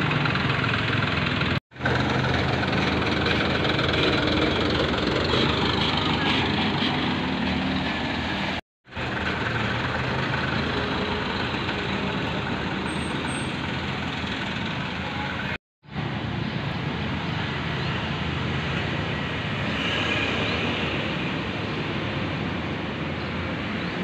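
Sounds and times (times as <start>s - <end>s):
van pulling away: 0.0s - 15.3s
minibus engines idling: 0.0s - 19.6s.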